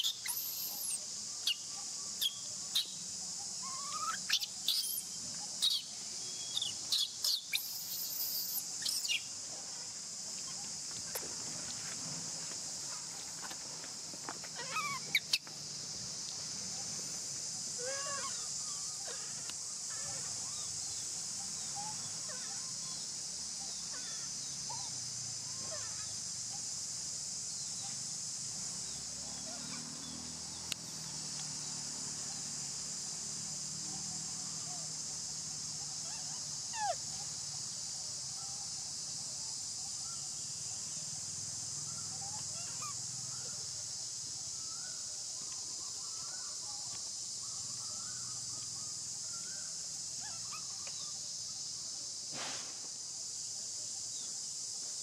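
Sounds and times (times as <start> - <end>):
squeaky chirps: 0.0 - 1.6, 3.6 - 9.3, 14.6 - 15.4
high-pitched insect drone: 0.0 - 52.3.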